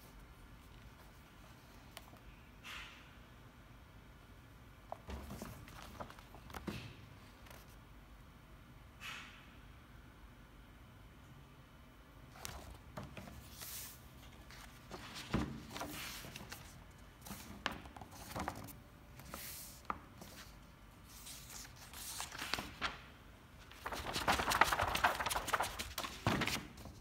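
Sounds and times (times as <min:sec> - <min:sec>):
book pages rustling: 0:05.0 - 0:06.7, 0:12.3 - 0:23.0, 0:23.6 - 0:27.0.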